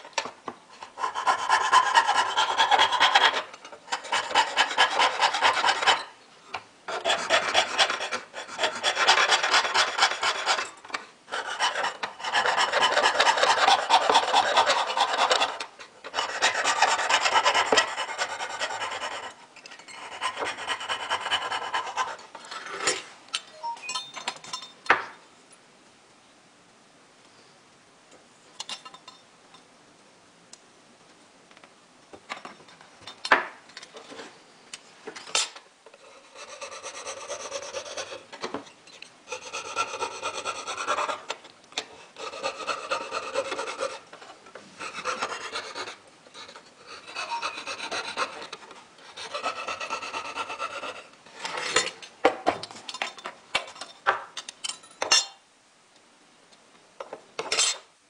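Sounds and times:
file scraping metal sheet: 0:00.8 - 0:06.1, 0:06.9 - 0:22.8, 0:42.2 - 0:44.1, 0:44.8 - 0:51.8
metal taps and clinks: 0:23.4 - 0:25.1.

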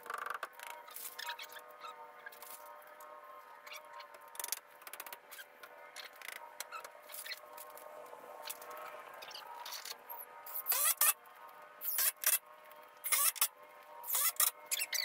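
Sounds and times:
tape measure clicking and rattling: 0:13.0 - 0:13.5.

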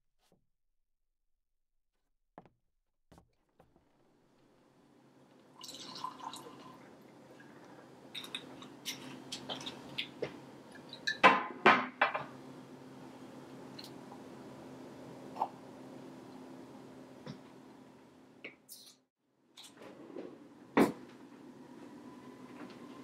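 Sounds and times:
liquor pouring into glass: 0:05.6 - 0:06.9.

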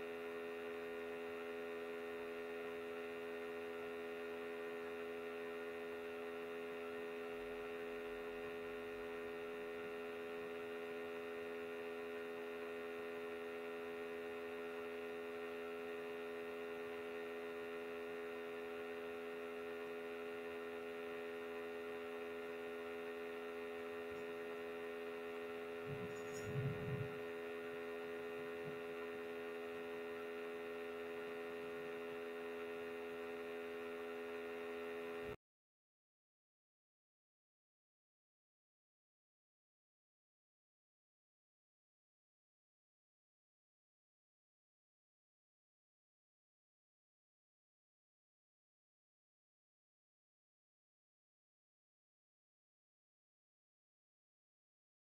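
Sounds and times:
electrical mains hum: 0:00.0 - 0:35.4.

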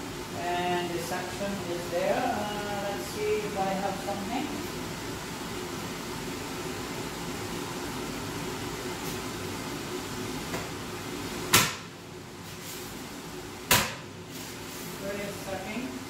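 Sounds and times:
dust-collector fan whooshing: 0:00.0 - 0:16.0.

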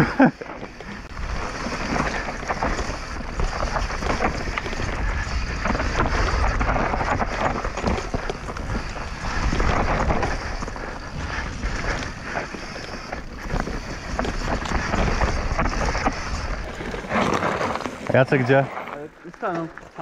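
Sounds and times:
bike rattling over bumps: 0:00.0 - 0:20.0
bike tyres rolling on dirt: 0:00.0 - 0:20.0
wind buffeting microphone: 0:00.7 - 0:19.3.

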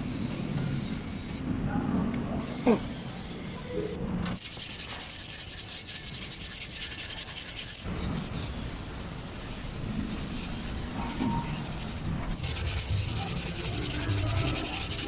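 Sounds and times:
aerosol can spraying: 0:02.4 - 0:15.0
rubbing on brake disc: 0:12.3 - 0:15.0.

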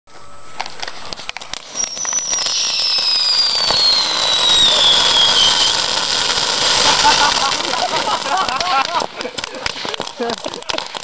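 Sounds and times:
firework whistle sliding down: 0:00.1 - 0:08.1
firework crackling and hissing: 0:00.2 - 0:11.0.

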